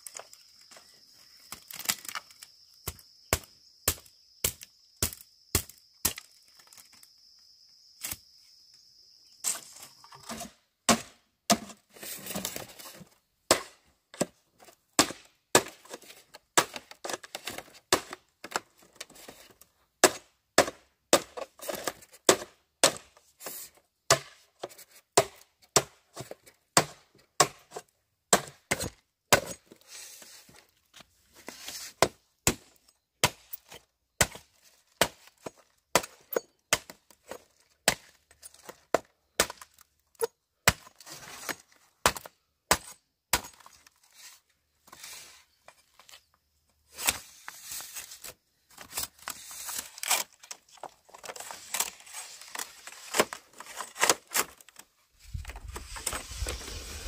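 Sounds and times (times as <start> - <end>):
chopping strikes on bamboo: 2.8 - 6.3, 10.3 - 11.8, 13.5 - 14.4, 15.0 - 15.9, 16.6 - 16.9, 17.9 - 18.2, 20.0 - 21.4, 22.3 - 23.1, 24.1 - 24.4, 25.2 - 26.0, 26.8 - 27.7, 28.3 - 29.6, 32.0 - 33.6, 34.2 - 35.3, 35.9 - 37.1, 37.8 - 38.2, 38.9 - 39.8, 40.6 - 40.9, 42.0 - 43.7
soft scraping: 55.2 - 57.0.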